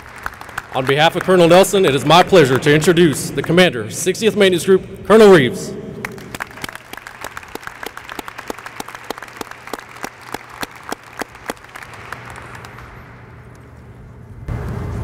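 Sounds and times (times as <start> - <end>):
small crowd applauding: 0.0 - 3.7, 6.0 - 13.5.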